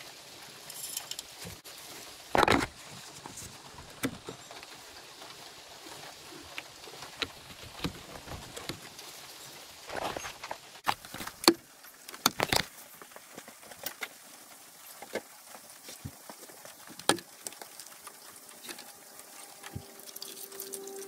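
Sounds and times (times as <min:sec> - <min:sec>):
plastic jug cap coming off: 0:02.4 - 0:02.7.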